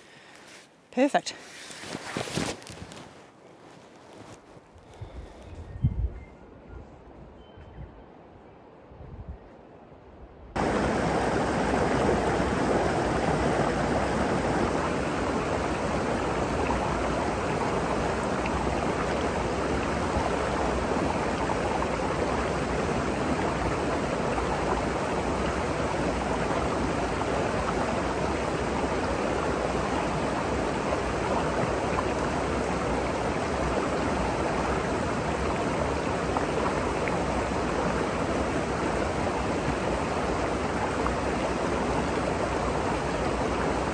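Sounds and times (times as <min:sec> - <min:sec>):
stream rushing over rocks: 0:10.6 - 0:43.9.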